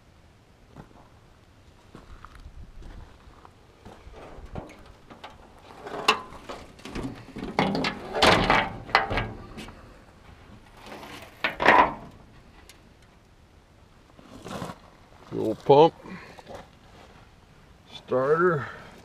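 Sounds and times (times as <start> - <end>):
footsteps on gravel: 1.8 - 5.8.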